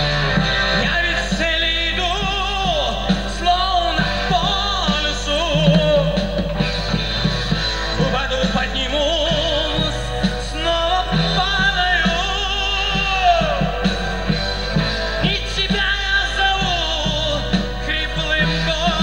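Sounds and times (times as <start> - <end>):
drum kit beat: 2.1 - 8.6
lead melody with vibrato: 5.4 - 7.4.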